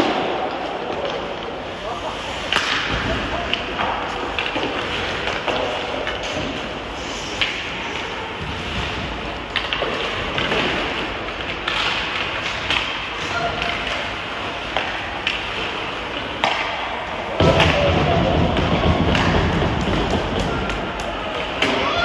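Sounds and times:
hockey sticks and puck clacking: 0:00.0 - 0:22.0.

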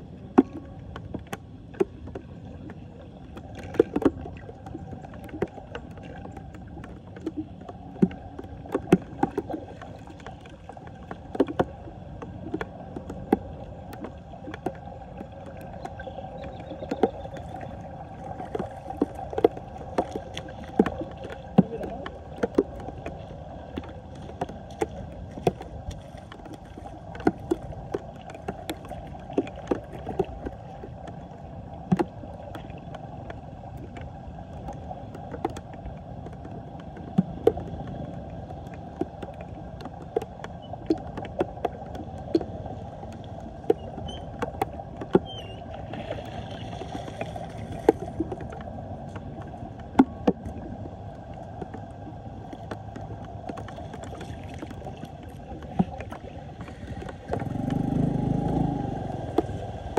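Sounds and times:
water gurgling down a drain: 0:00.0 - 0:59.9
sharp plops and clicks: 0:03.4 - 0:31.2, 0:31.8 - 0:49.2, 0:52.5 - 0:59.9.

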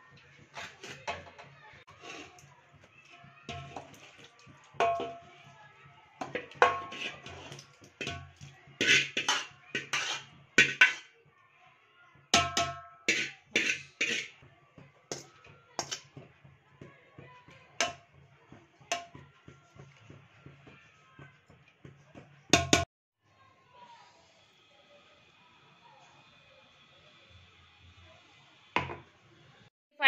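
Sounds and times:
spoon scraping and clanking on pots: 0:00.1 - 0:05.5, 0:06.2 - 0:11.2, 0:12.4 - 0:14.5, 0:15.1 - 0:16.4, 0:17.8 - 0:18.2, 0:18.9 - 0:20.1.

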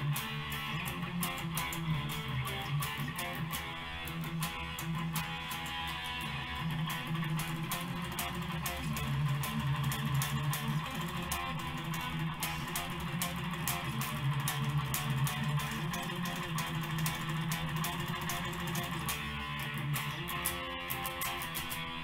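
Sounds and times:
electric guitar quickly picked notes: 0:00.0 - 0:22.0.

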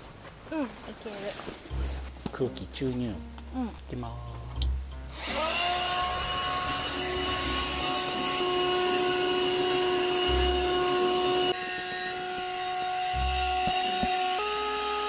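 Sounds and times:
electric air pump whining: 0:05.1 - 0:15.0.

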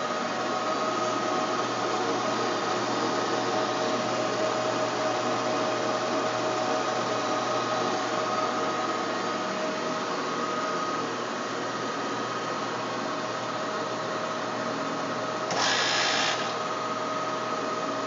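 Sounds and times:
lathe motor whirring: 0:15.5 - 0:16.7.

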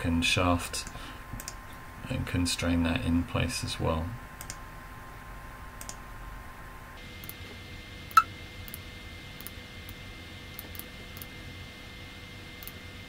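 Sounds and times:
faint steady hum: 0:00.0 - 0:13.0
computer mouse clicks: 0:00.8 - 0:01.6, 0:04.4 - 0:04.6, 0:05.8 - 0:06.0.

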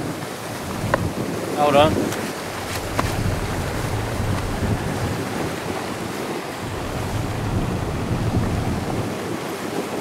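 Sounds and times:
water rushing over rocks: 0:00.0 - 0:10.0
wind buffeting microphone: 0:00.0 - 0:10.0.

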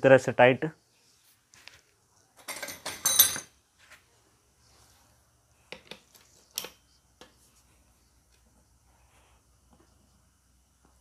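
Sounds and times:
metal hand tools clinking: 0:02.4 - 0:03.5.

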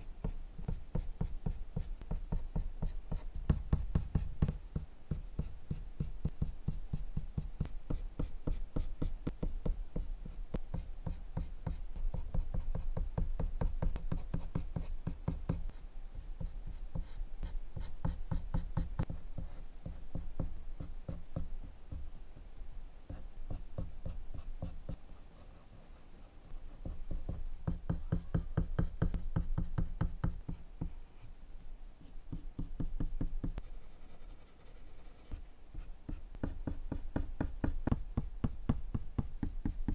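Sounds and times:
colored pencil scratching on paper: 0:23.1 - 0:38.0.

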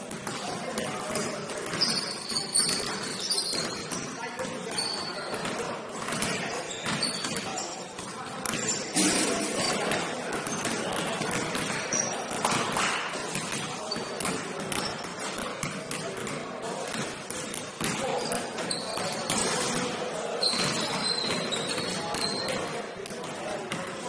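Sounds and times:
players' voices: 0:00.0 - 0:24.0
basketball bouncing: 0:00.1 - 0:04.5, 0:13.3 - 0:19.9.

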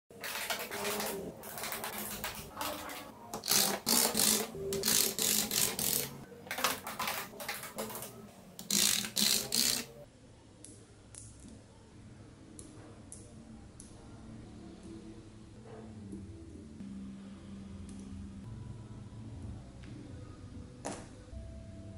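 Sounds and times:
magnet balls clicking and rattling: 0:00.2 - 0:10.0.

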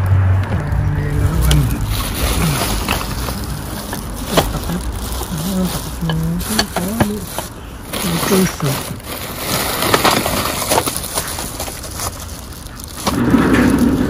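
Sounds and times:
muffled voice murmuring: 0:00.4 - 0:09.0
plastic bags rustling: 0:00.5 - 0:14.0.

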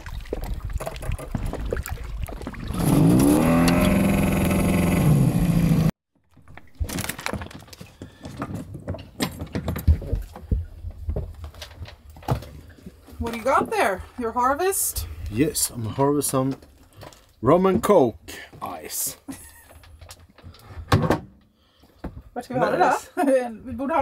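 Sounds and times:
boat engine revving: 0:02.6 - 0:05.9
ice chunks knocking and clinking: 0:06.6 - 0:08.2.

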